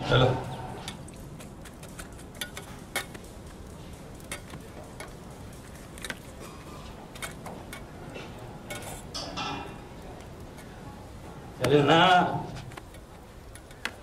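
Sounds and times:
steel plates and utensils clinking: 6.3s - 9.9s.

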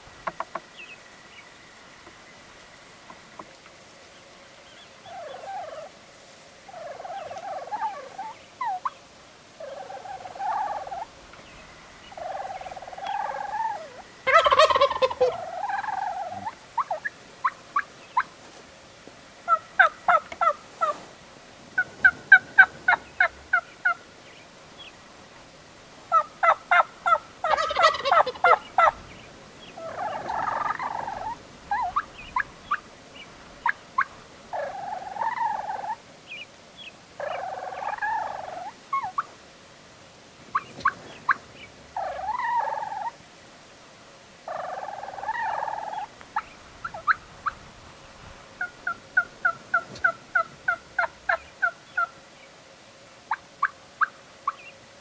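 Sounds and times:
soft low turkey calls: 0.0s - 39.4s, 40.5s - 43.8s, 44.4s - 52.6s, 53.2s - 54.8s
turkey gobbles: 4.7s - 5.9s, 6.7s - 9.0s, 9.6s - 18.3s, 19.5s - 21.0s, 21.8s - 24.0s, 26.1s - 39.3s, 40.5s - 43.2s, 44.5s - 47.7s, 48.5s - 52.2s.

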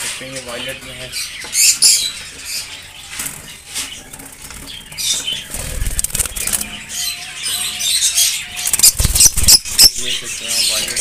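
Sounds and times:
birds chirping: 0.0s - 11.0s
wings fluttering: 3.1s - 6.8s, 8.6s - 9.9s.

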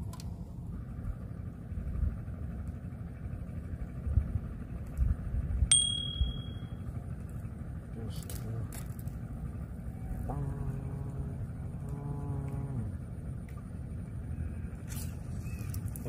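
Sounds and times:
bell-like ding: 5.7s - 6.8s.

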